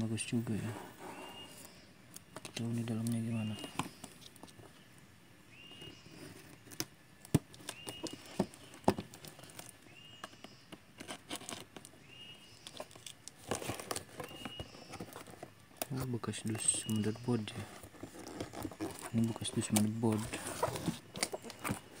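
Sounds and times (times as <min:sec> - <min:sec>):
packing tape crackling: 0:12.6 - 0:22.0.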